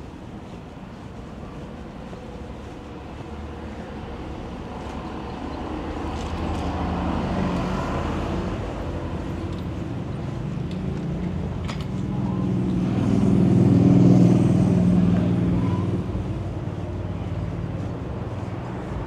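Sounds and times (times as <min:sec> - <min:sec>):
city traffic noise: 0:00.0 - 0:19.0.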